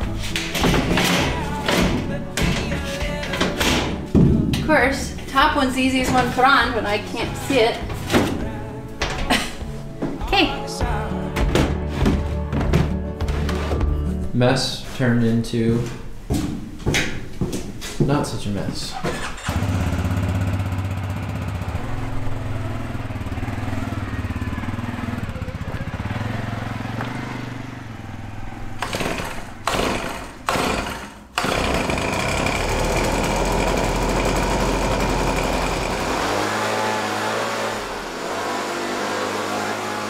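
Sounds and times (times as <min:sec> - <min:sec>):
leaf blower engine running: 0:28.8 - 0:40.0.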